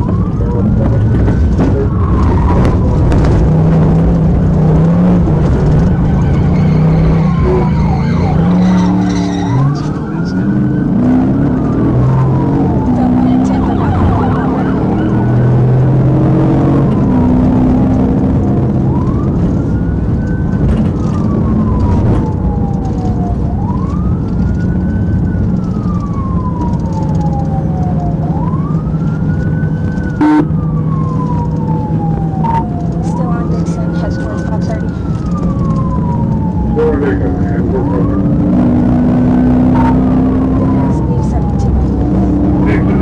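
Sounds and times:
engine and road noise: 0.0s - 43.0s
police siren wailing: 0.0s - 43.0s.

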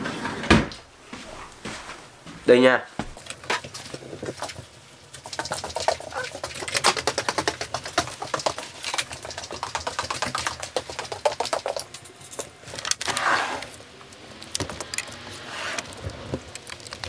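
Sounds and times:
footsteps indoors: 0.0s - 4.8s.

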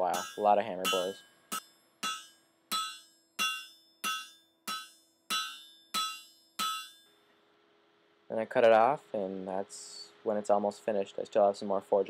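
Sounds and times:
hammer striking metal on anvil: 0.0s - 7.1s.

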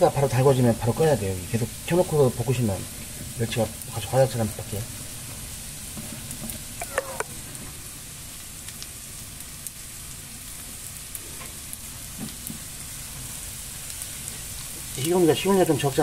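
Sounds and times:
fish sizzling in hot oil: 0.0s - 16.0s
wooden spatula stirring in pan: 1.5s - 8.9s, 10.5s - 15.0s.

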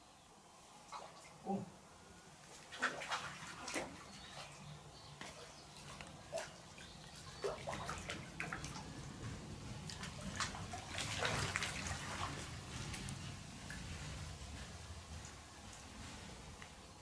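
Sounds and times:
fish splashing in water: 2.6s - 9.1s, 9.8s - 14.0s.

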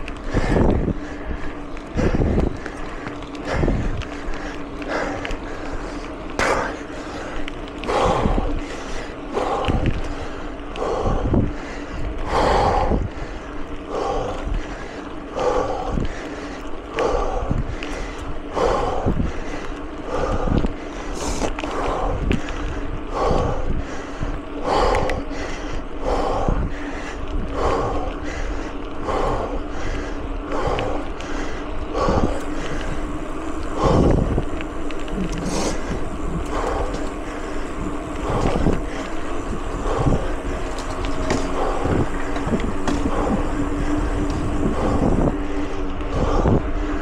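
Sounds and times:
bike rolling and rattling: 0.0s - 47.0s
faint steady hum: 0.0s - 47.0s
heavy breathing: 0.0s - 47.0s
rushing bursts: 32.1s - 47.0s.

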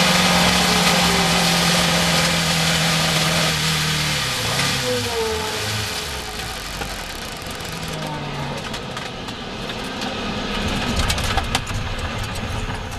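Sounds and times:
uneven low engine note: 0.0s - 8.9s
wind and road noise: 0.0s - 12.9s
sharp rattling clicks: 6.4s - 8.0s.

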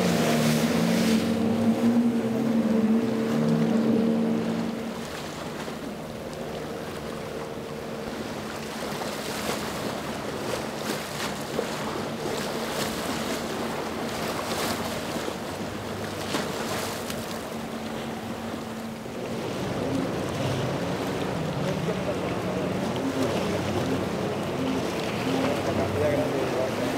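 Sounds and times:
outboard motor drone: 0.0s - 26.9s
waves: 0.0s - 26.9s.

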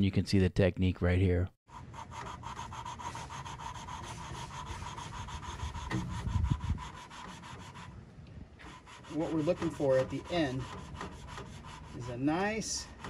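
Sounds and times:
gritty rasp of valve lapping: 1.8s - 8.0s, 8.6s - 13.0s.

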